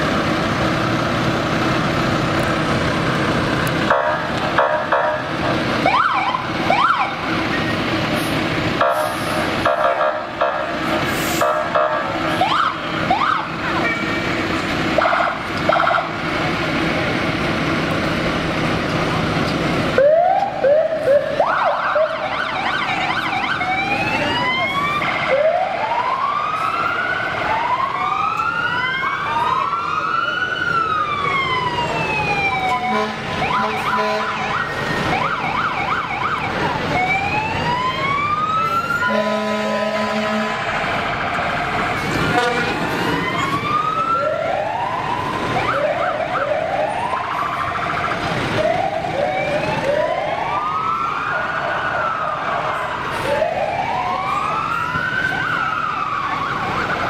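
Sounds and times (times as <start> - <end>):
fire truck sirens wailing: 0.0 - 57.0
siren whoops: 5.8 - 7.6, 11.4 - 14.1, 20.0 - 57.0
horn blasts: 32.8 - 34.6, 39.0 - 40.7, 42.3 - 42.8.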